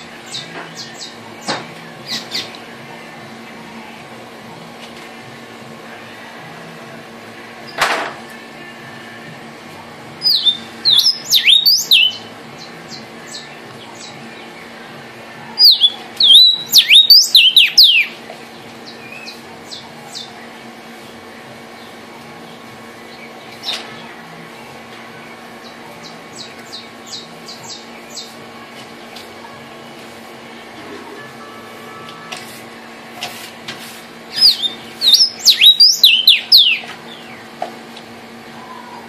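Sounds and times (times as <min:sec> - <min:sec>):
faint steady hum: 0:00.0 - 0:39.0
bird singing whistled notes: 0:10.2 - 0:12.3, 0:15.6 - 0:18.2, 0:34.3 - 0:37.4.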